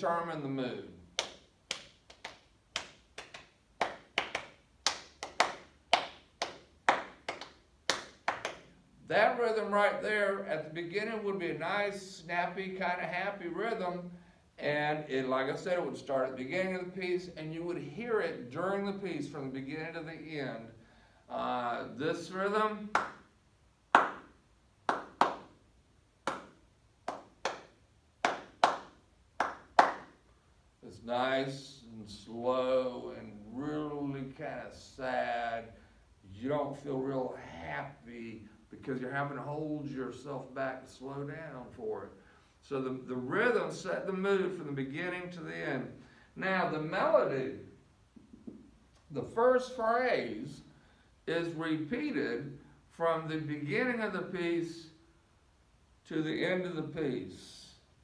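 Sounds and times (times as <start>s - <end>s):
man clapping rhythmically: 1.0s - 8.8s, 22.9s - 23.3s, 23.9s - 25.6s, 26.2s - 30.2s.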